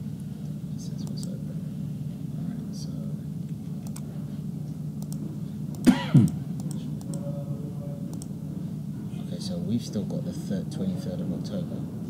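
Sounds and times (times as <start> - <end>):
low room hum: 0.0 - 12.0
computer mouse clicks: 3.8 - 4.0, 5.0 - 7.2, 8.1 - 8.3
person clearing throat: 5.8 - 6.4.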